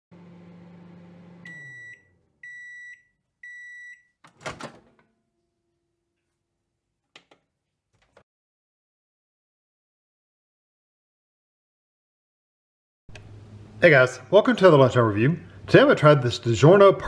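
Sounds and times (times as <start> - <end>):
microwave humming: 0.1 - 6.1, 13.1 - 14.0
microwave door clunking open: 4.3 - 5.0.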